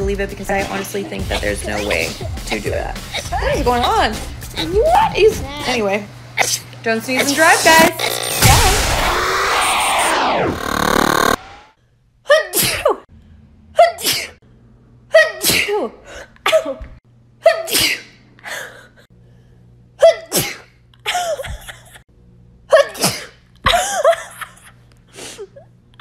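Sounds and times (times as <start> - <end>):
woman sneezing: 5.6 - 8.8, 12.3 - 13.0, 13.8 - 14.4, 15.1 - 16.8, 17.4 - 18.6, 20.0 - 21.6, 22.7 - 23.9.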